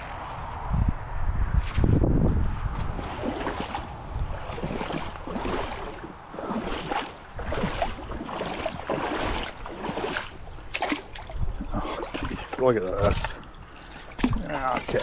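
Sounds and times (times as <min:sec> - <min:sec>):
wind rumbling on microphone: 0:00.0 - 0:14.9
creek water running over stones: 0:03.5 - 0:15.0.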